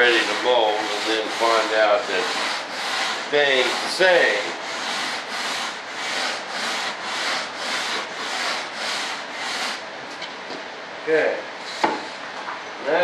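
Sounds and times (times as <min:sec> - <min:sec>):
sanding back and forth: 0:00.0 - 0:09.9, 0:11.6 - 0:12.3.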